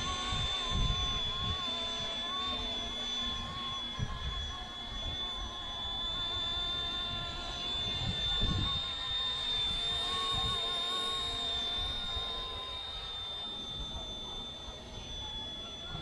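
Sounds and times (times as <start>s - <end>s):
toy helicopter motor whine: 0.0s - 16.0s.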